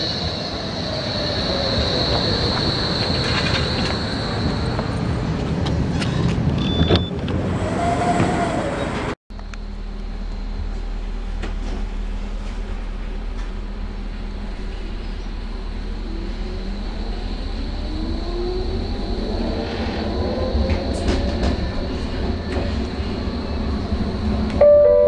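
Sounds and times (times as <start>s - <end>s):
tram wheel squeal: 0.0s - 9.2s, 14.6s - 25.0s
low hum inside tram: 0.0s - 25.0s
short beeps: 6.6s - 7.1s, 24.6s - 25.0s.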